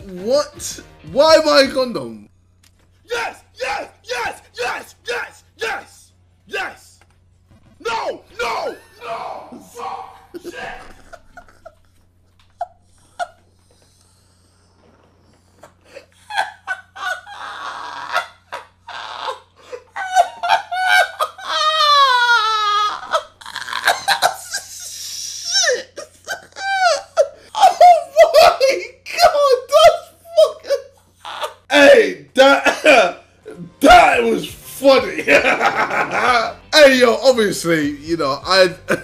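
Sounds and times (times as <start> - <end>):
man laughing hysterically: 3.1 - 5.8, 7.8 - 13.5, 15.5 - 31.7, 32.4 - 33.2, 34.9 - 36.6, 38.8 - 39.0.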